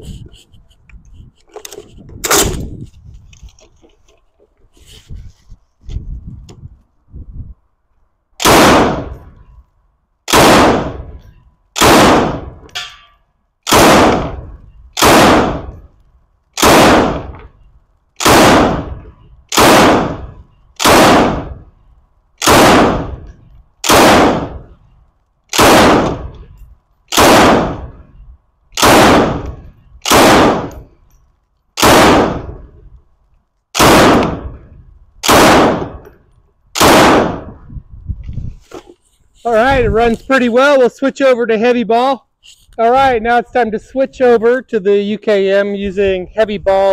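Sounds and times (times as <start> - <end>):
rifle single shots: 2.2 - 2.6, 8.4 - 9.4, 10.3 - 11.2, 11.8 - 12.9, 13.6 - 15.9, 16.6 - 17.5, 18.2 - 21.7, 22.4 - 24.8, 25.5 - 26.5, 27.1 - 28.1, 28.8 - 30.9, 31.8 - 32.8, 33.8 - 34.6, 35.2 - 36.1, 36.8 - 37.6
gunshot echo: 8.4 - 9.4, 10.3 - 11.2, 11.8 - 12.7, 13.7 - 15.9, 16.6 - 17.5, 18.2 - 21.7, 22.4 - 24.8, 25.6 - 26.4, 27.1 - 28.1, 28.8 - 30.8, 31.8 - 32.8, 33.8 - 36.0, 36.8 - 37.6.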